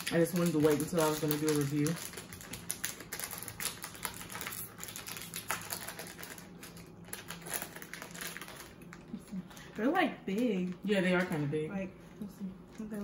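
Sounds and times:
plastic wrapper crinkling: 0.0s - 9.2s.

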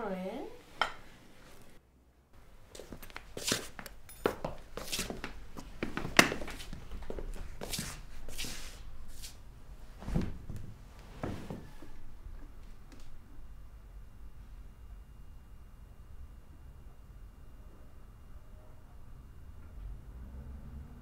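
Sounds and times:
footsteps on tiled floor: 2.7s - 9.4s
fabric rustling: 2.7s - 12.0s.

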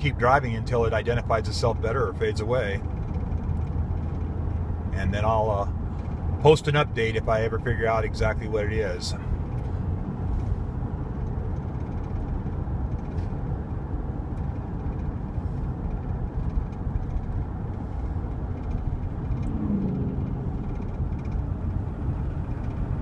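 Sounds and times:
road noise: 0.0s - 23.0s
truck engine running: 0.0s - 23.0s
brief rising tone: 19.4s - 21.0s.

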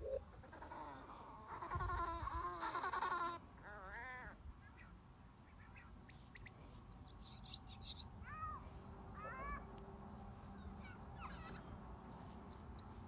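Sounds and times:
rising and falling animal calls: 0.0s - 4.4s.

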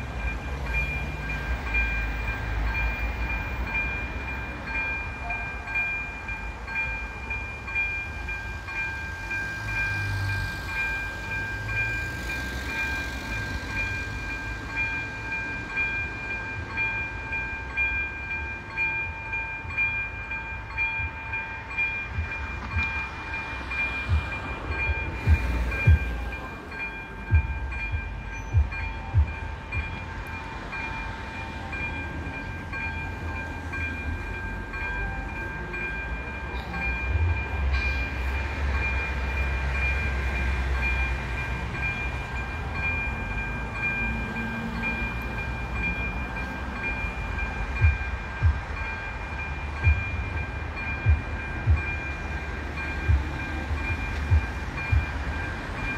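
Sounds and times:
level crossing warning bell: 0.0s - 55.9s
car engine low rumble: 18.4s - 55.9s.

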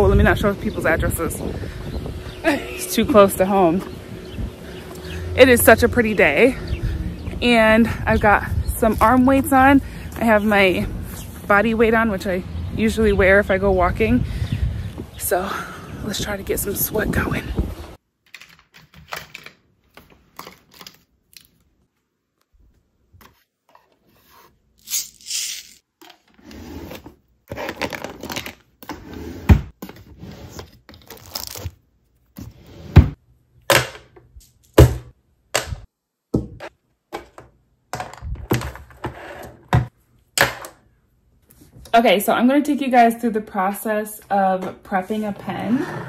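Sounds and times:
pens rattling in plastic holders: 18.3s - 21.0s.

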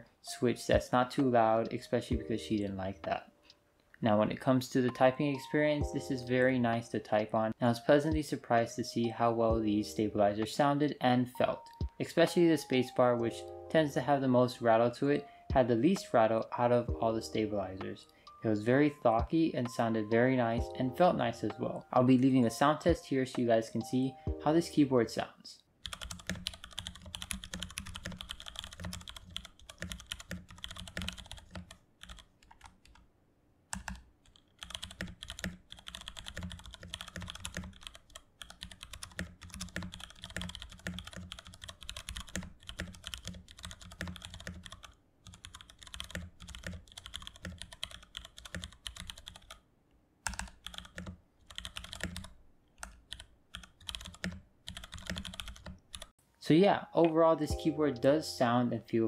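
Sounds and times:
mechanical keyboard typing: 25.8s - 33.0s, 33.8s - 49.6s, 50.3s - 56.1s.

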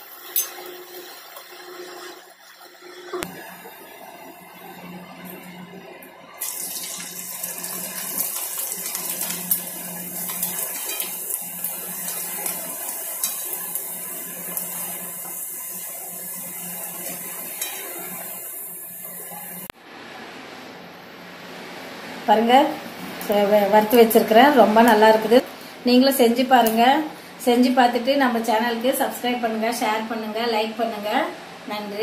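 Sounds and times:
deep-frying sizzle with crackles: 0.0s - 19.8s.

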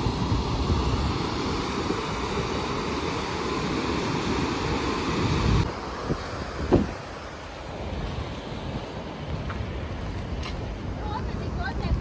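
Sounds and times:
water rushing from spillway: 0.0s - 12.0s
wind noise on microphone: 0.0s - 12.0s.

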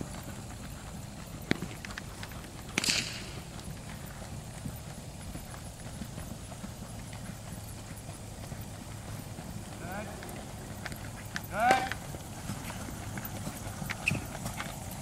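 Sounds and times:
horse hoofbeats on grass: 0.0s - 15.0s.

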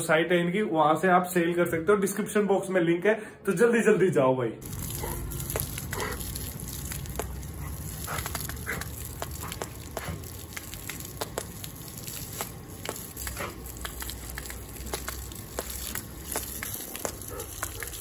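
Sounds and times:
dog snapping and lapping: 4.6s - 18.0s
hose water spattering: 4.6s - 18.0s.

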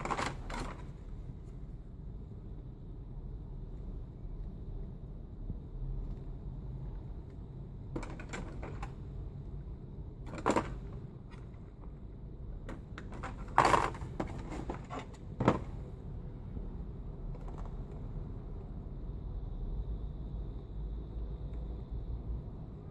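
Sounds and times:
plastic clattering knocks: 10.3s - 11.0s, 12.7s - 15.8s.

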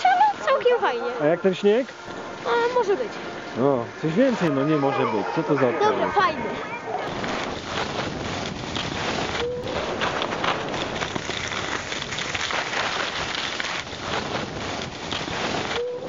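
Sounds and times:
skis sliding on hard snow: 7.1s - 15.9s.

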